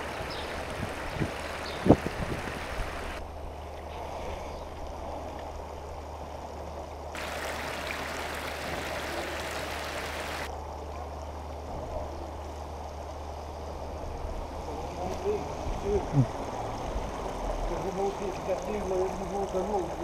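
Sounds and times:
floodwater rushing: 0.0 - 5.6, 7.2 - 10.5, 14.8 - 20.0
water spilling over a kerb: 7.2 - 10.5, 15.2 - 20.0.

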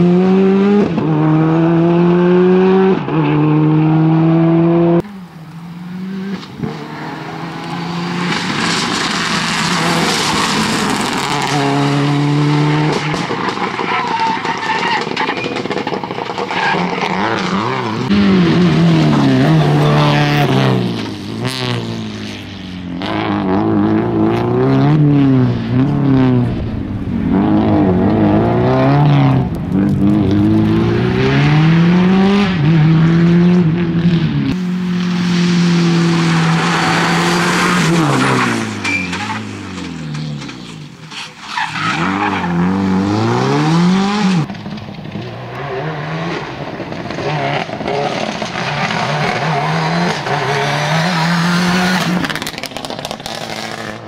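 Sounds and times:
rally car engine revving: 0.0 - 54.0
tyre squeal: 13.1 - 18.1, 36.4 - 42.9.

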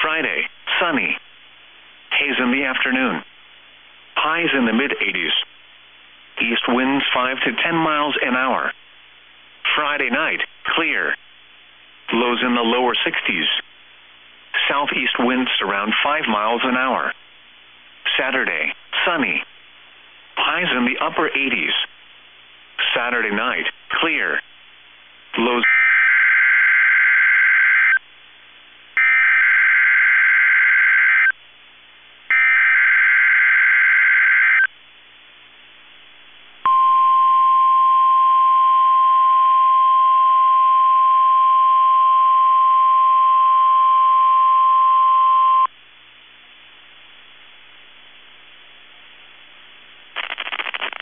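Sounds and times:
steady warning alarm tone: 29.0 - 31.3, 32.3 - 34.7.

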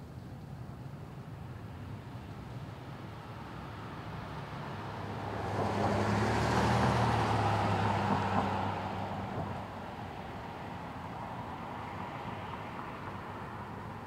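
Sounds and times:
car driving past: 5.2 - 9.6.

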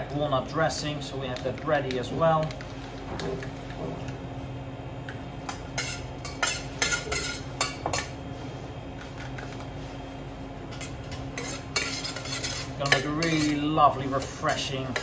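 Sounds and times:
steady low hum: 0.0 - 15.0
utensil scraping metal bowl: 10.8 - 15.0.

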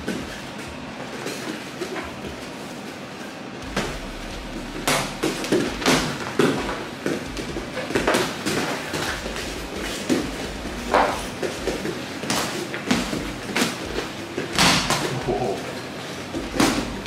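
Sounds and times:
boxing gloves thudding: 4.8 - 15.4.

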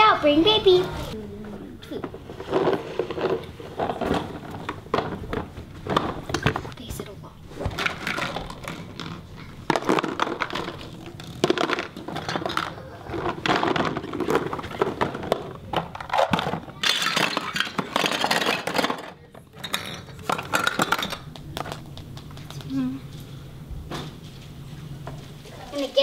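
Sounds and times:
plastic toy pieces clattering: 7.7 - 21.8.

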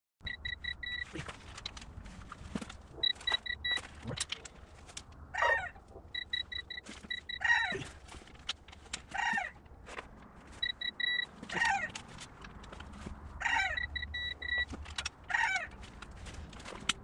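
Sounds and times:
quick electronic beeps: 0.2 - 1.1, 3.0 - 3.8, 6.1 - 7.4, 10.6 - 11.3, 13.8 - 14.7.

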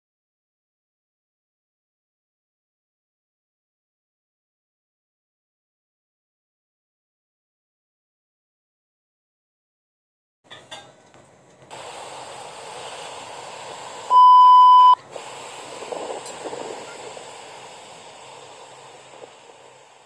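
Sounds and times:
background hiss: 11.2 - 20.0
test-tone beep: 14.1 - 15.0.

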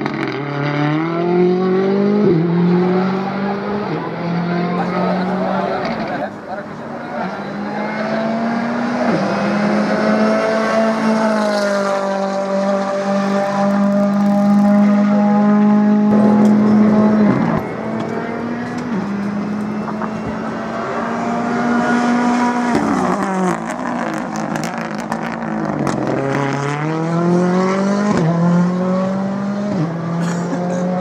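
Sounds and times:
rally car engine at high revs: 0.0 - 31.0.

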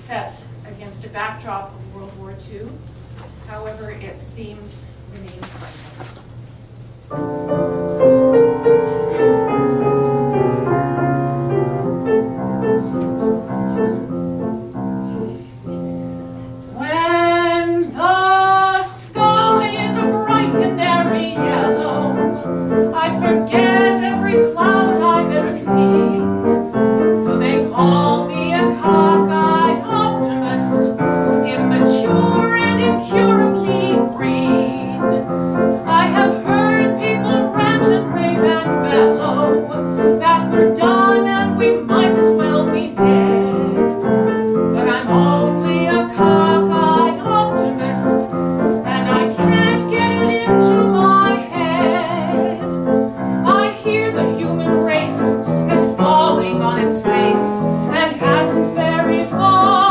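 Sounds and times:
grand piano: 7.0 - 59.9
woman singing: 16.8 - 35.2, 35.8 - 44.0, 44.7 - 52.8, 53.4 - 59.9.

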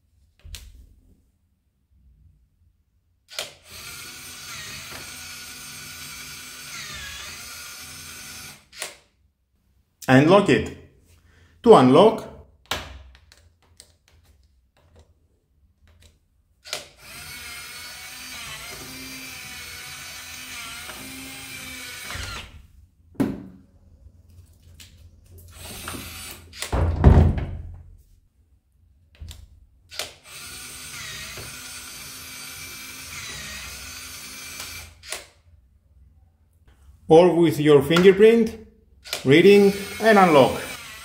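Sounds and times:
lock motor turning: 3.3 - 9.0, 16.6 - 22.6, 29.9 - 35.4, 39.0 - 41.0
loud heavy thump: 26.8 - 27.8.

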